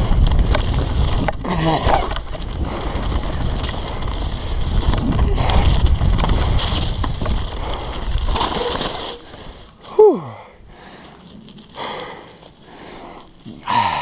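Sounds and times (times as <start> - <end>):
wind rushing over microphone: 0.0 - 9.6
bike tyres rattling on gravel: 0.0 - 10.0, 10.6 - 14.0.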